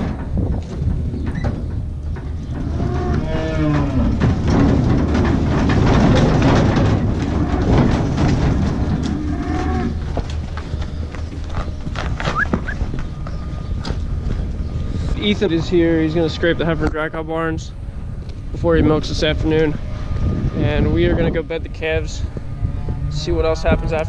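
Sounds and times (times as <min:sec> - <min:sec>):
hooves clattering on concrete: 0:00.0 - 0:17.0
cattle mooing: 0:02.6 - 0:04.3, 0:08.9 - 0:10.1.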